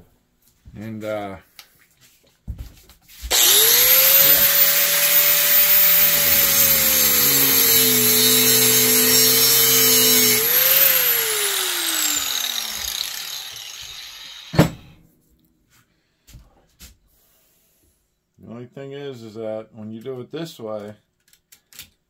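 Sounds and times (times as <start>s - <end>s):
angle grinder cutting steel: 3.3s - 14.6s.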